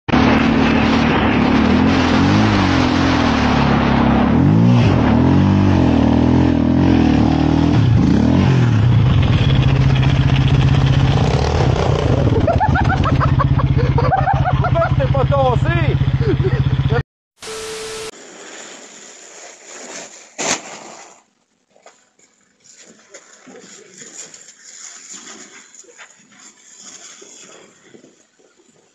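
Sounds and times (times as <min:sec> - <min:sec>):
snowmobile engine revving: 0:00.1 - 0:18.1.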